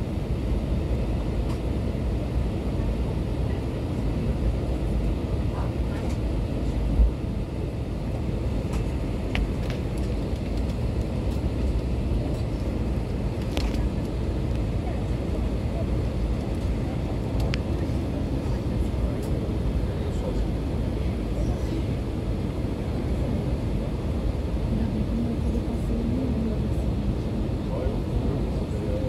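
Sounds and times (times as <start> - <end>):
aircraft cabin rumble and air rush: 0.0 - 29.0.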